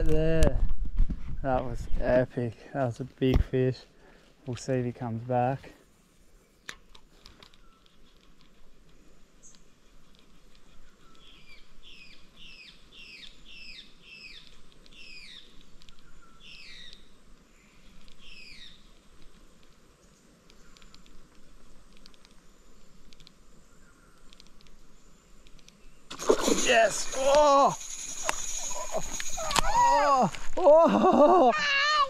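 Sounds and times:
bird calling: 10.6s - 18.9s, 26.6s - 32.0s
sharp click: 24.3s - 24.8s.

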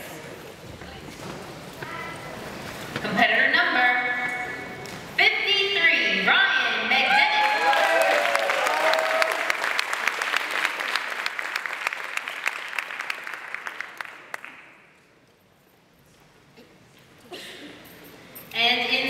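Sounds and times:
audience applauding: 7.1s - 14.7s.

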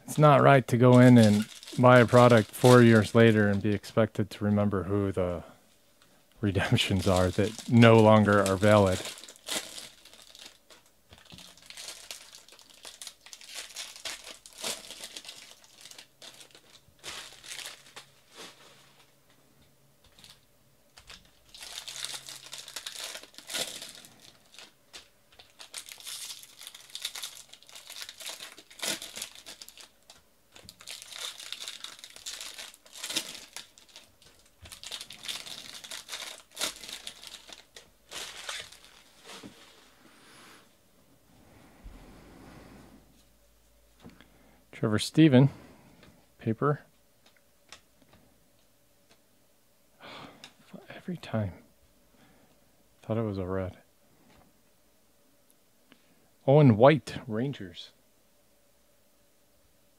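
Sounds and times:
foil wrappers crinkling and tearing: 0.1s - 3.9s, 6.5s - 19.1s, 20.1s - 40.0s.

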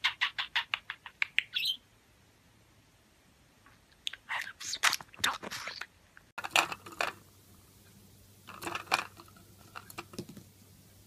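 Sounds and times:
budgerigar chirps: 0.0s - 1.8s.

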